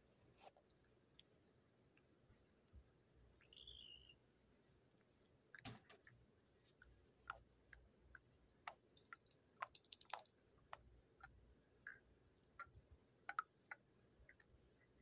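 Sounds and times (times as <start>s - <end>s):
faint chirp-like blips: 3.4s - 4.2s
faint clicks and taps: 4.7s - 15.0s.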